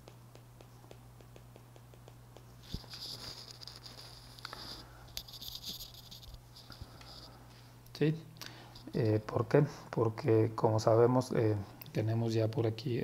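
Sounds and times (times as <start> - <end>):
stylus scratching on tablet: 0.1 - 7.4.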